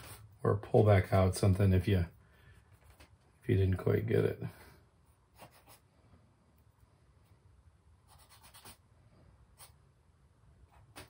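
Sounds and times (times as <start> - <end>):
charcoal scratching on paper: 5.3 - 5.8, 8.1 - 8.8.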